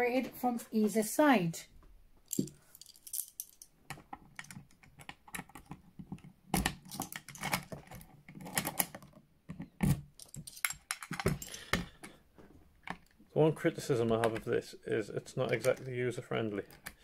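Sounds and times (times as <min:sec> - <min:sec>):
keys jangling: 0:02.3 - 0:03.7, 0:06.8 - 0:07.8, 0:10.2 - 0:11.8
key turning in lock: 0:02.3 - 0:09.2, 0:09.8 - 0:11.8.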